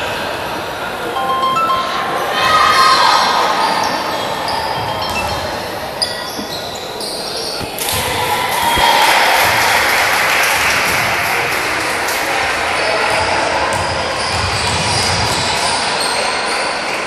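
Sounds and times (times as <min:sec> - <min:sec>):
crowd noise: 0:00.0 - 0:17.0
sneakers squeaking: 0:03.6 - 0:09.8.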